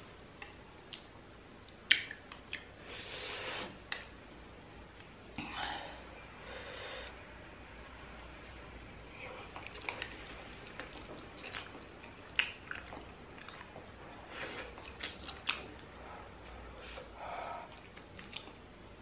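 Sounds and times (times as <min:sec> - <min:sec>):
wet chewing mouth sounds: 0:09.4 - 0:16.6, 0:17.6 - 0:18.6.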